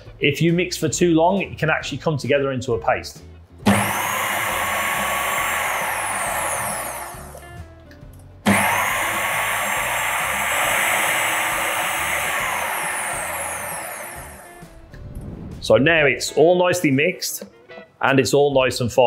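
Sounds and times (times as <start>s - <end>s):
food processor motor whirring: 3.7s - 7.6s, 8.5s - 14.8s.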